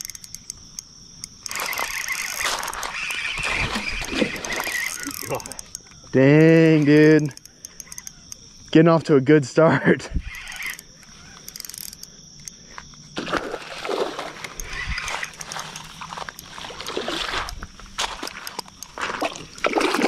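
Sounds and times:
fish splashing in water: 0:01.7 - 0:05.6, 0:13.2 - 0:18.4, 0:19.0 - 0:20.0.

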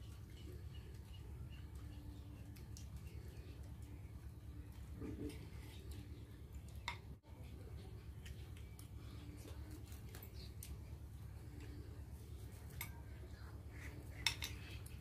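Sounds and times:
spoons clinking against bowls: 0:12.6 - 0:15.0.

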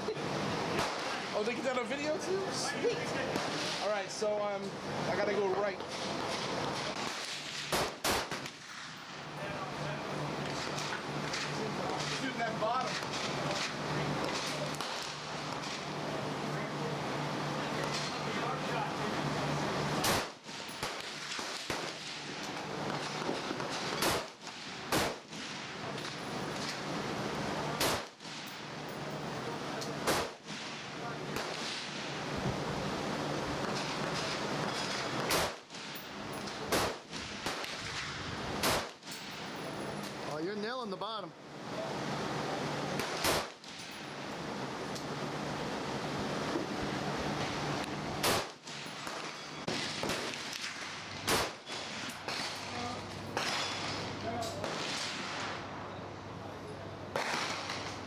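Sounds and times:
steady background hiss: 0:00.0 - 0:58.0
rifle shots: 0:00.7 - 0:01.2, 0:05.9 - 0:09.0, 0:20.0 - 0:26.7, 0:27.8 - 0:28.5, 0:30.0 - 0:32.0, 0:33.6 - 0:39.4, 0:43.0 - 0:43.9, 0:48.2 - 0:52.8, 0:53.4 - 0:55.6, 0:57.1 - 0:58.0.

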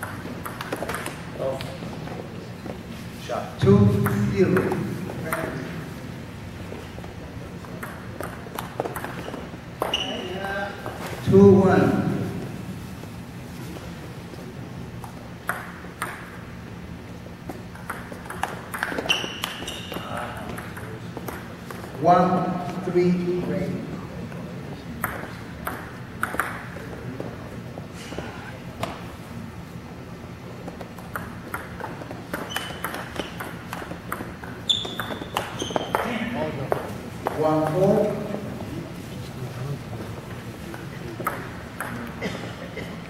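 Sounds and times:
table tennis ball hits and bounces: 0:00.0 - 0:01.2, 0:07.7 - 0:11.0, 0:15.0 - 0:16.4, 0:17.5 - 0:22.0, 0:25.0 - 0:26.9, 0:30.8 - 0:36.1, 0:41.2 - 0:42.2
shoe squeak on floor: 0:09.2 - 0:10.4, 0:18.9 - 0:20.2, 0:32.4 - 0:33.4, 0:34.6 - 0:36.1
short high squeak: 0:19.1 - 0:20.0, 0:34.7 - 0:36.0.

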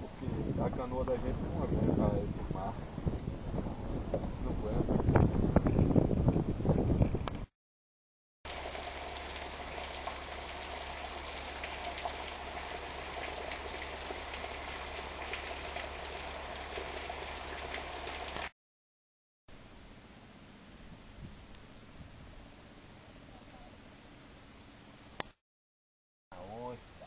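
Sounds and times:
wind noise on microphone: 0:00.0 - 0:07.5, 0:20.7 - 0:22.7
rain hissing and pattering: 0:08.5 - 0:18.5.

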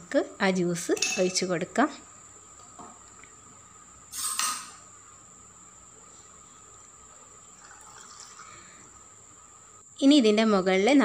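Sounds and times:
liquid pouring: 0:07.6 - 0:08.7.

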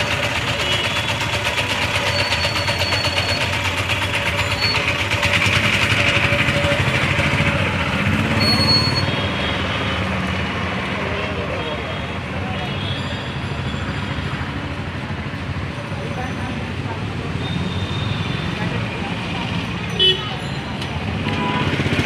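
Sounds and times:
vehicle engine running: 0:00.0 - 0:11.5
street traffic: 0:00.0 - 0:22.0
brief high tones: 0:08.4 - 0:09.2.

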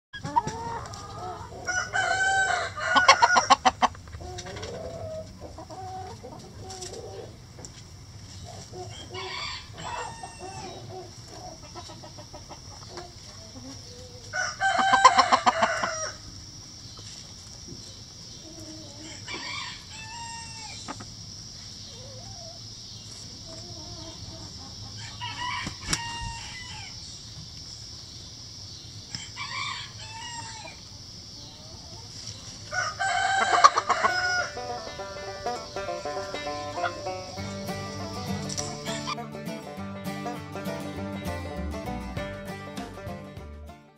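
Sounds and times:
hens clucking softly: 0:00.2 - 0:27.5, 0:29.0 - 0:39.2
rooster crowing: 0:00.6 - 0:03.8, 0:08.8 - 0:10.8, 0:14.2 - 0:16.2, 0:18.8 - 0:20.8, 0:25.0 - 0:27.0, 0:29.2 - 0:30.8, 0:32.7 - 0:39.2.

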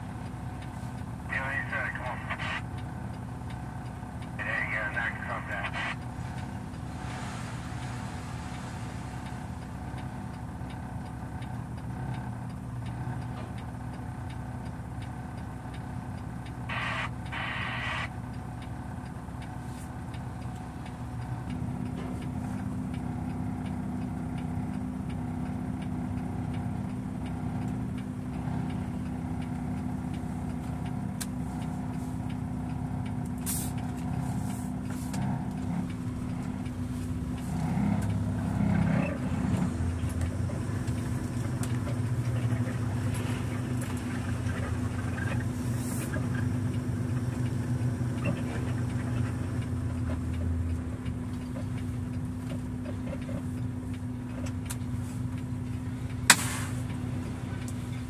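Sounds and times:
diesel truck engine idling: 0:00.0 - 0:58.0
air hiss: 0:56.3 - 0:56.8.

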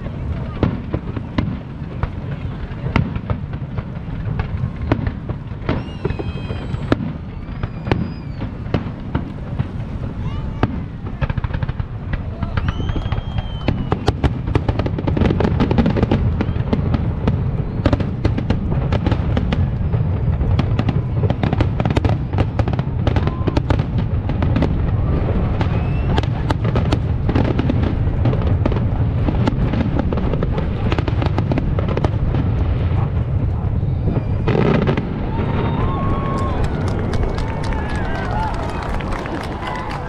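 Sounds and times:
low rumble of booms: 0:00.0 - 0:37.6
fireworks cracking and popping: 0:00.0 - 0:40.0
rising whistle: 0:05.7 - 0:08.6, 0:12.6 - 0:14.1, 0:25.6 - 0:26.2.

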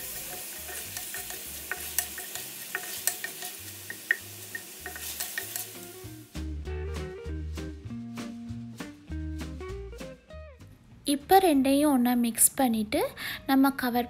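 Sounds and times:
wooden spatula scraping a pan: 0:00.0 - 0:04.2
meat sizzling in a frying pan: 0:00.0 - 0:06.4.

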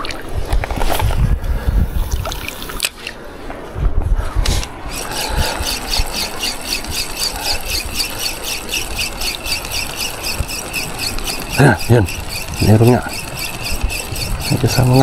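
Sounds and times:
fishing reel squeaking tick: 0:04.9 - 0:15.0.

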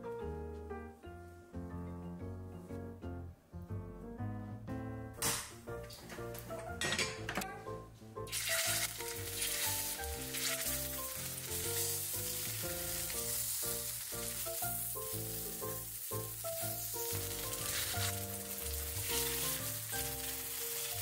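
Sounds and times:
pancakes sizzling in oil: 0:08.3 - 0:21.0.

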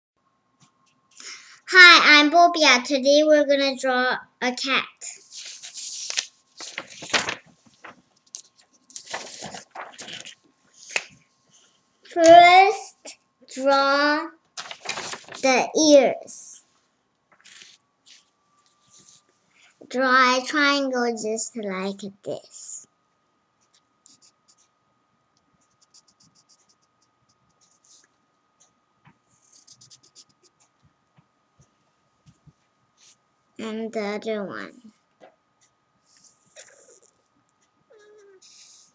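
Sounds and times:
paper rustling: 0:05.2 - 0:11.2, 0:14.6 - 0:15.6, 0:17.3 - 0:19.2
felt-tip marker scratching paper: 0:17.4 - 0:18.2, 0:23.6 - 0:24.7, 0:25.6 - 0:28.1, 0:29.3 - 0:30.6.

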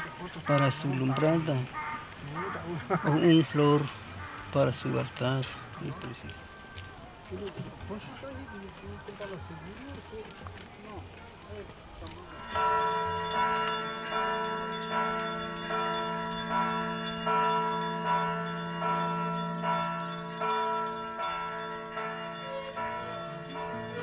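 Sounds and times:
church bells ringing: 0:00.0 - 0:06.4, 0:12.2 - 0:24.0.

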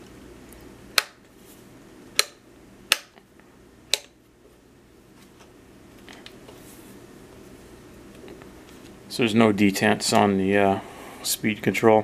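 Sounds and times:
toggle switch clicks: 0:03.9 - 0:04.1.

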